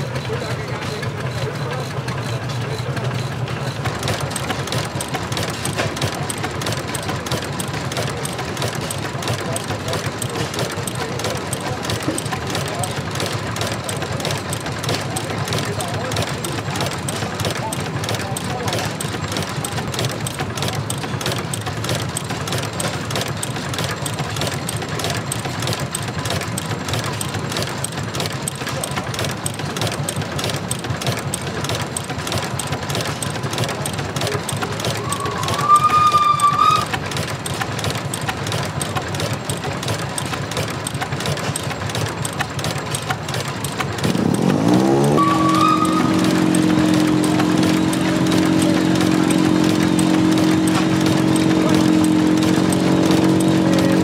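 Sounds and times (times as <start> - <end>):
old stationary engine running: 0.0 - 54.0.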